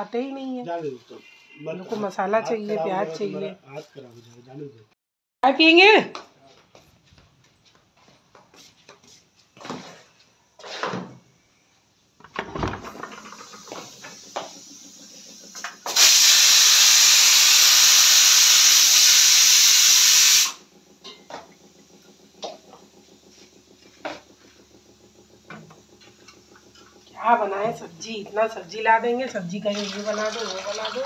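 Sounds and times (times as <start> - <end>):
pressure cooker steam hiss: 13.2 - 20.8.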